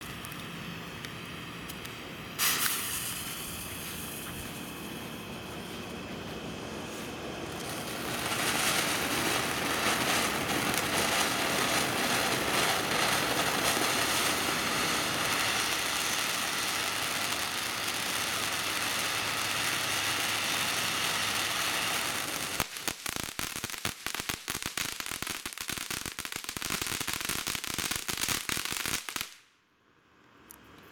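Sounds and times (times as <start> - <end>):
hissing spraying sparks: 0.0 - 29.4
crackle of rapid pops: 7.4 - 29.4.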